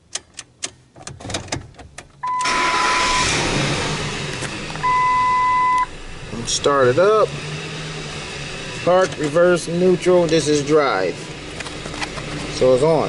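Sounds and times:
truck engine starting and running: 0.1 - 13.0
electronic beep: 4.8 - 5.9.

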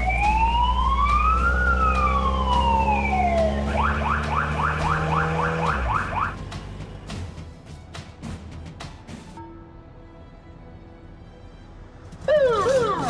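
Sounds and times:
police siren: 0.0 - 6.4, 12.2 - 13.0.

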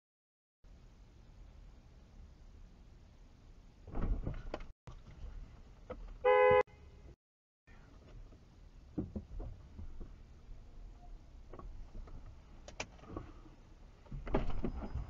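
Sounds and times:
low rumbles and thumps: 3.8 - 6.2, 8.0 - 10.7
car horn honk: 6.2 - 7.0.

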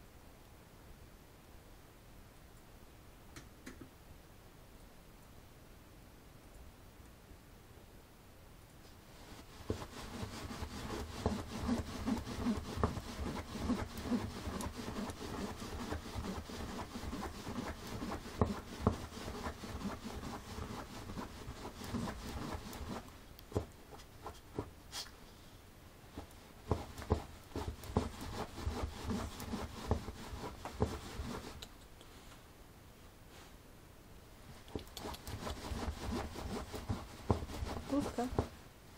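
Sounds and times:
dog fur rubbing on fabric: 9.1 - 25.1, 26.1 - 31.7, 34.5 - 38.6.

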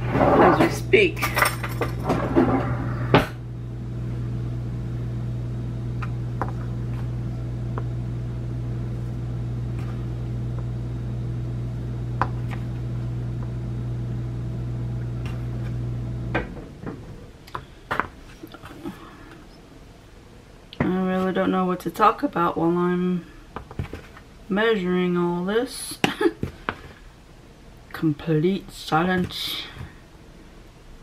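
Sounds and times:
kitchen appliance humming: 0.0 - 19.6.

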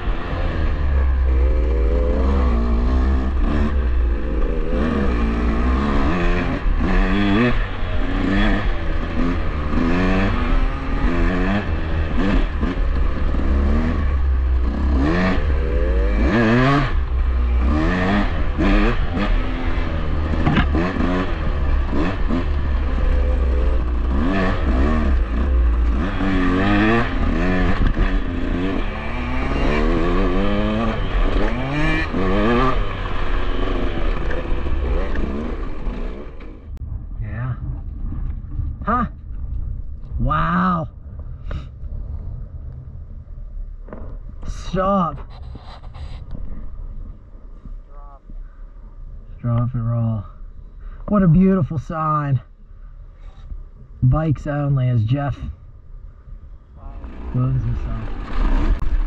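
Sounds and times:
dirt bike engine revving: 0.0 - 36.8, 56.9 - 59.0
wind rumble on microphone: 26.8 - 50.8.

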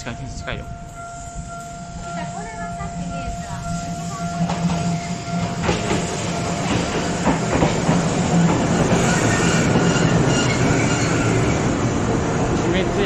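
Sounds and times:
tram running hum: 0.0 - 13.0
wheel clacks over rail joints: 4.4 - 11.2
light wheel squeal: 9.0 - 11.7.

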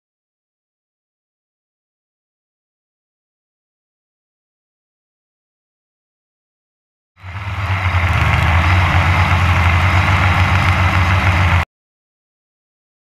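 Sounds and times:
quadcopter motors and propellers: 7.2 - 11.6.

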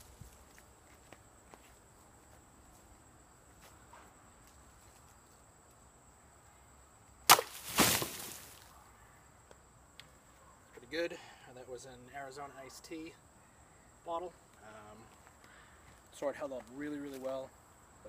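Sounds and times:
sword cutting plastic bottle: 7.3 - 8.6.

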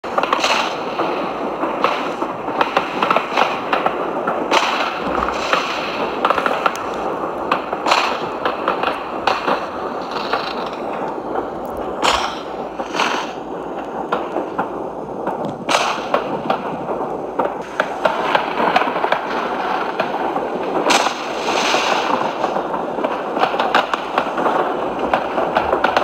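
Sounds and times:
fireworks bursting with bangs: 0.0 - 26.0
background din: 5.0 - 7.7.

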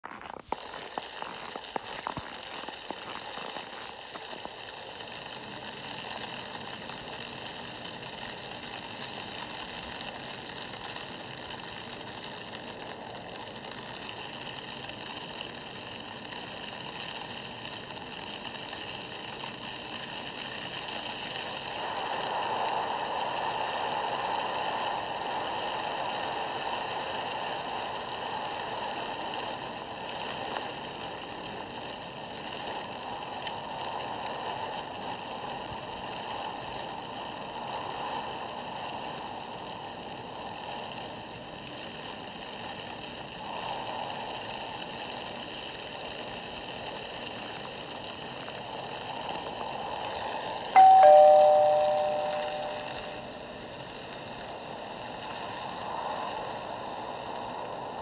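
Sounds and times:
steady rushing hiss: 0.0 - 58.0.

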